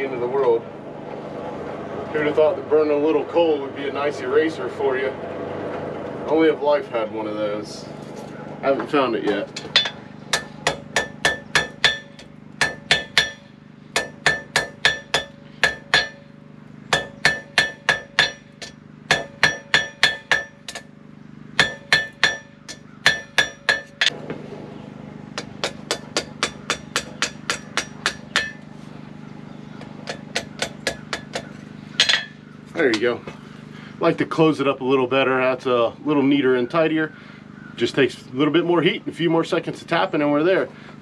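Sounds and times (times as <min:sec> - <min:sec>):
steady low hum: 0:00.0 - 0:41.0
hammer striking metal on anvil: 0:09.3 - 0:16.3, 0:16.9 - 0:20.9, 0:21.6 - 0:24.2, 0:25.4 - 0:28.6, 0:30.0 - 0:32.4.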